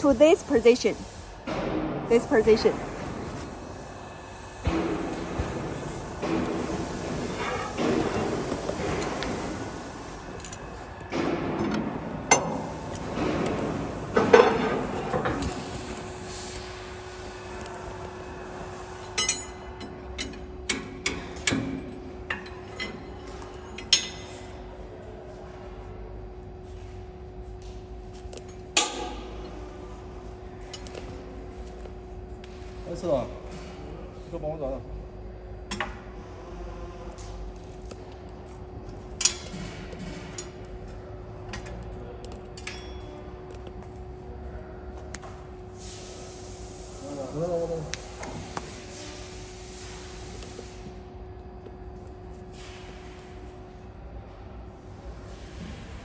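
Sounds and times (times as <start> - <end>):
steady low hum: 0.0 - 56.0
metal clinks and knocks: 19.2 - 24.4.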